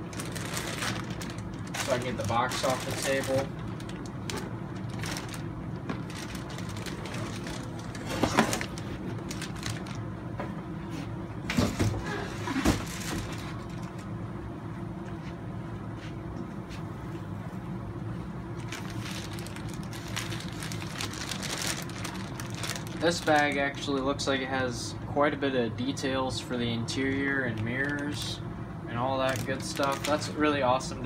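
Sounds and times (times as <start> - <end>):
plastic bags crinkling: 0.0 - 10.1, 12.7 - 14.1, 18.6 - 24.1, 27.0 - 28.3, 29.1 - 30.6
low room hum: 0.0 - 31.0.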